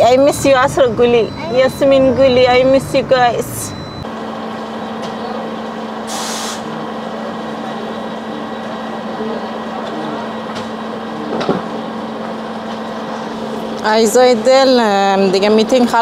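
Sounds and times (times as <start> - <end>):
road rush: 0.0 - 16.0
vehicle running hum: 0.0 - 16.0
short hiss: 6.1 - 6.6.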